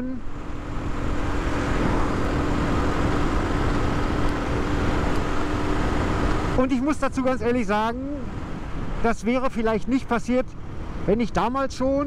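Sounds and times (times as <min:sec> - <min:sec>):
motorcycle engine cruising: 0:00.0 - 0:06.7
wind and road noise: 0:00.0 - 0:12.0.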